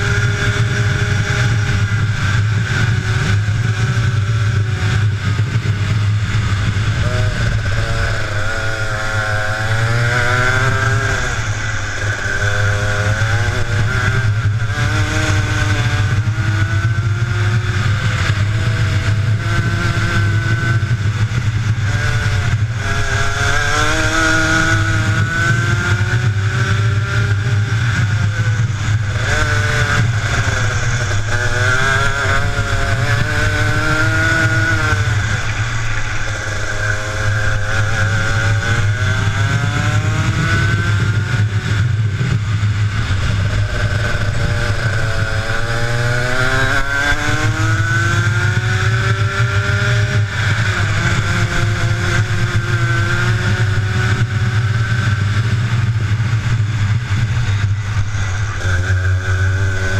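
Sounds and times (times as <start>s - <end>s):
steady low rumble: 0.0s - 23.7s, 24.3s - 46.6s
kart engine accelerating: 0.0s - 59.9s.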